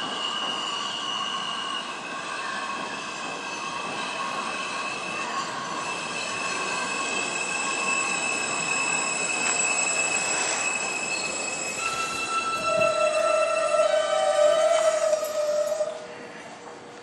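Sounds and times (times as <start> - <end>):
wheel and brake squeal: 0.0 - 16.1
subway train rumbling on rails: 0.0 - 17.0.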